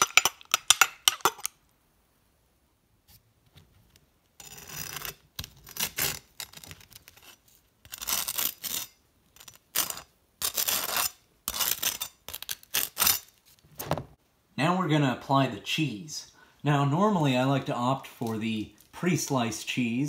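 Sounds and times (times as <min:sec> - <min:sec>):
knife scraping toast: 0:04.4 - 0:13.4.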